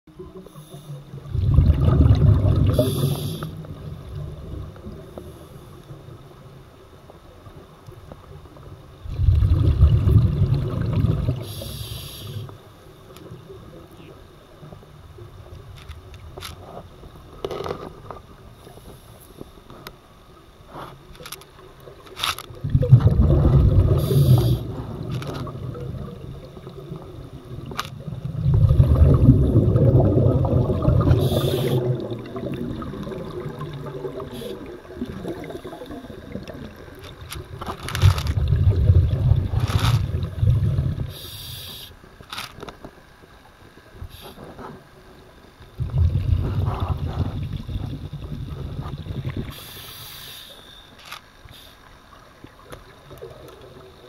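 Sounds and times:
diver exhaling bubbles: 1.2 - 5.1, 9.0 - 11.8, 22.6 - 36.9, 37.5 - 41.2, 45.8 - 49.7
regulator hissing: 31.2 - 31.9.

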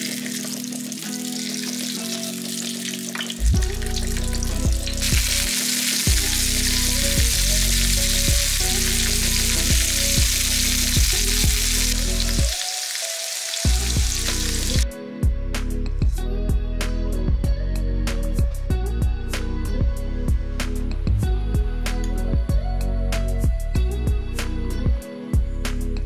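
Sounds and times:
meat sizzling in a frying pan: 0.0 - 14.8
background music with plucked notes: 0.0 - 26.0.

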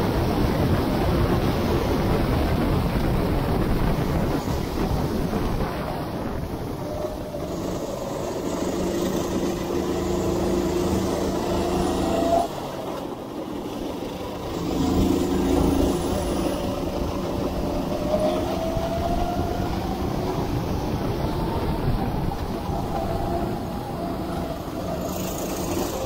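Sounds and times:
go-kart engine revving: 5.8 - 26.0.

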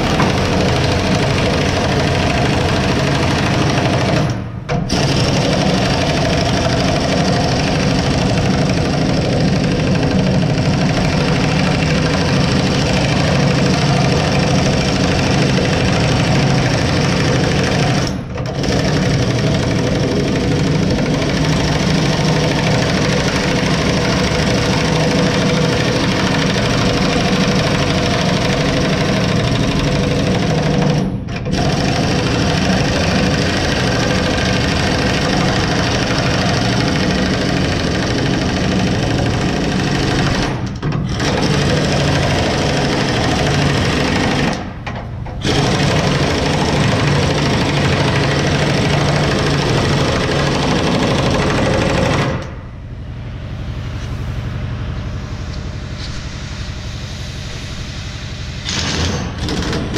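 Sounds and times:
machine noise with fast rattle: 0.0 - 59.9.

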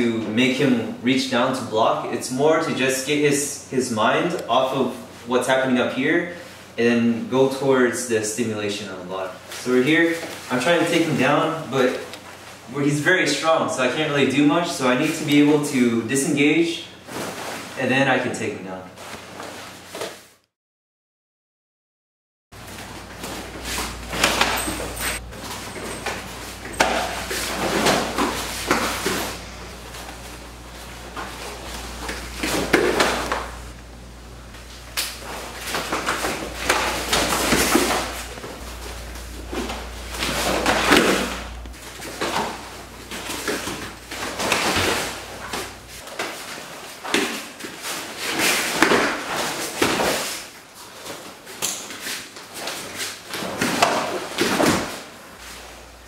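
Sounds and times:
cloth rustling: 22.6 - 33.8.

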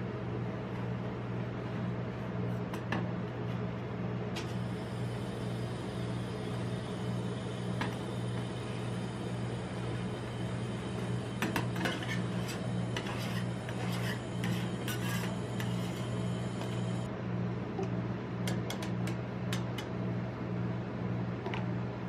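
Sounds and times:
steady low machine hum: 0.0 - 22.0
metal spatula scraping and tapping: 11.4 - 16.1.

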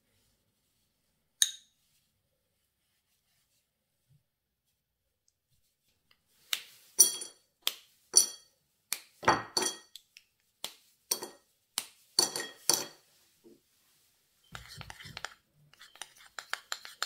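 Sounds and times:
pieces clinking into glass bowl: 7.0 - 7.4, 8.2 - 8.5, 9.3 - 9.9, 11.1 - 11.4, 12.2 - 13.0.

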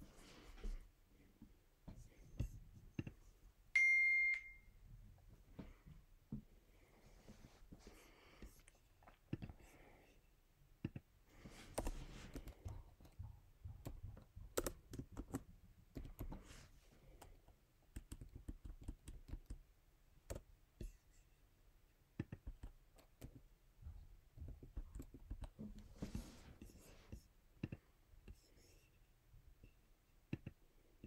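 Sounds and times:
laptop keyboard typing: 11.7 - 13.2, 13.8 - 16.5, 17.1 - 19.6, 20.2 - 20.5, 24.4 - 25.6.

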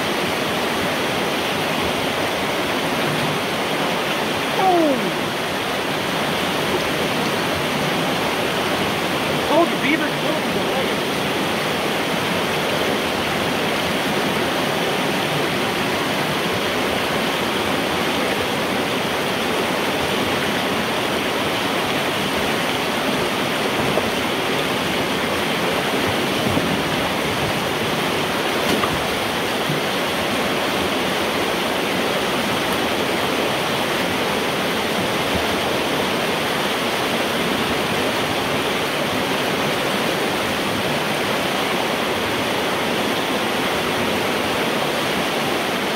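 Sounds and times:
water rushing through a pipe: 0.0 - 45.9.

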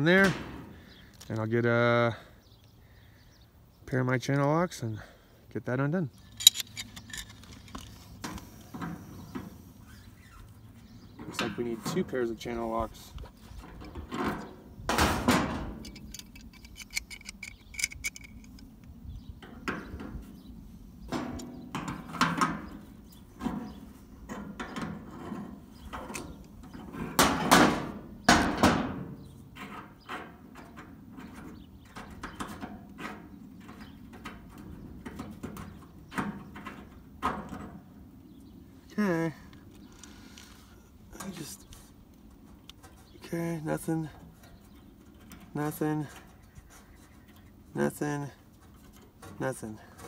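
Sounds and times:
pliers scraping on metal fitting: 6.2 - 8.0, 15.8 - 18.6.

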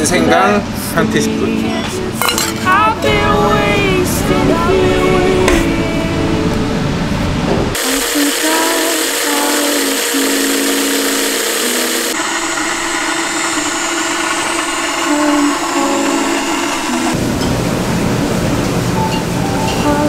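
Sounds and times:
electric blender running: 7.7 - 17.2.

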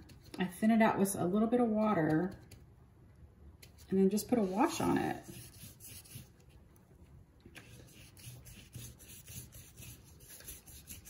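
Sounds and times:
paintbrush rubbing on paper: 3.7 - 6.6, 7.5 - 11.0.

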